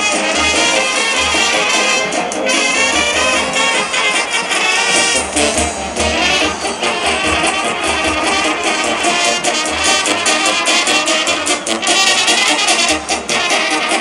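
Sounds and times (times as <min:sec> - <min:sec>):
horns: 0:00.0 - 0:14.0
trumpets: 0:00.0 - 0:14.0
drum: 0:04.8 - 0:14.0.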